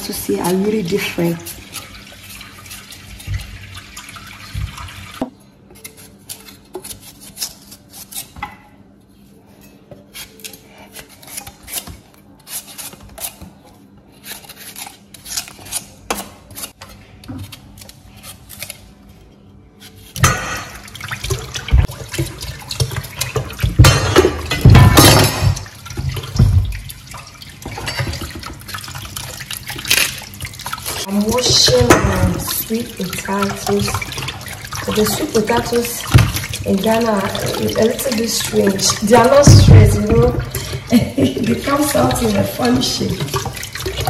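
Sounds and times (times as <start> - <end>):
water running into metal basin: 0.0 - 5.2, 20.2 - 44.0
knife scraping potato peel: 5.8 - 8.4, 10.0 - 16.8, 17.4 - 19.0.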